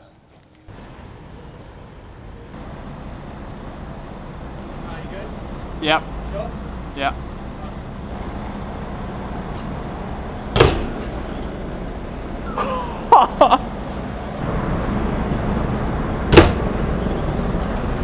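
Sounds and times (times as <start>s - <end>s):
short squeaks: 10.8s - 11.6s, 16.9s - 17.4s.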